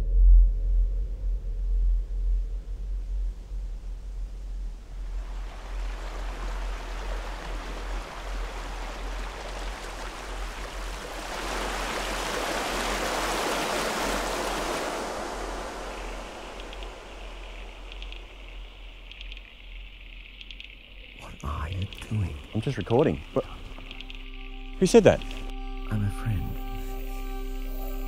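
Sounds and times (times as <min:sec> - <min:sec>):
water splashing over rocks: 0:05.0 - 0:20.9.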